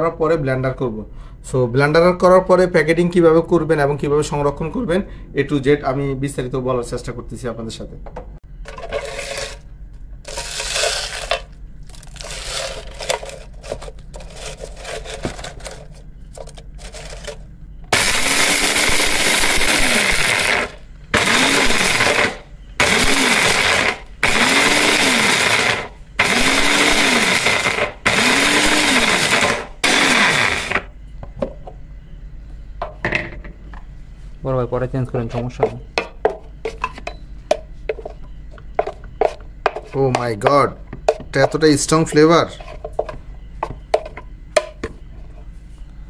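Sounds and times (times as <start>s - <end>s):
blender grinding spices: 8.7s - 9.6s, 10.2s - 30.9s
dry spices rattling into plastic jar: 10.3s - 17.4s.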